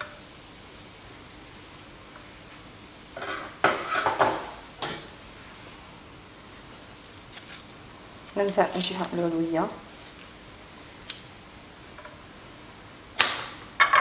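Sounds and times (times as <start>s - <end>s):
faint steady hum: 0.0s - 14.0s
kitchenware clinking and knocking: 3.2s - 5.1s.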